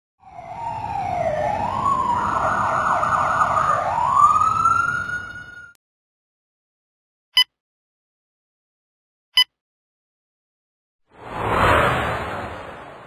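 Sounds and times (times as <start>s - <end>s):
siren wailing: 0.2s - 5.8s.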